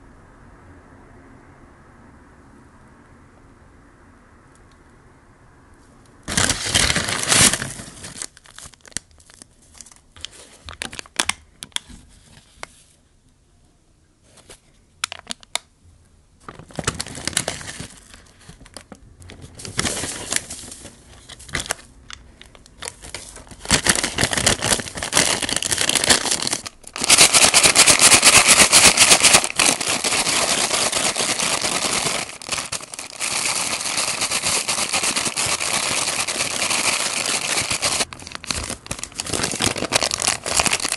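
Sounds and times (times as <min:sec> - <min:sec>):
paper bag shaken vigorously: 0:06.3 - 0:09.0, 0:16.5 - 0:18.1, 0:19.4 - 0:21.8, 0:22.8 - 0:40.9
paper bag crinkling: 0:06.3 - 0:11.3, 0:16.4 - 0:40.9.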